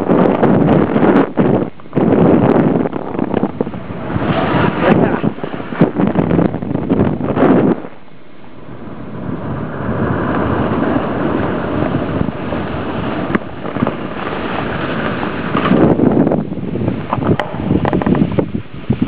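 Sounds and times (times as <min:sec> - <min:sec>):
wind buffeting microphone: 0:00.0 - 0:19.0
skis hissing through snow: 0:04.0 - 0:05.8, 0:10.0 - 0:16.0.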